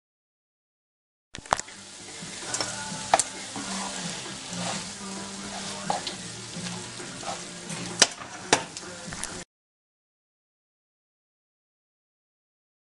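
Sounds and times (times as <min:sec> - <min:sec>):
food sizzling in a frying pan: 0:01.4 - 0:09.4
tongs clicking against a pan: 0:02.4 - 0:03.7, 0:05.5 - 0:09.4.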